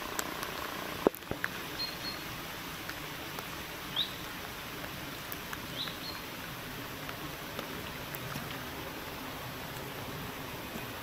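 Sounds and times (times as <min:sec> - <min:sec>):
rain falling on pond water: 0:00.0 - 0:11.0.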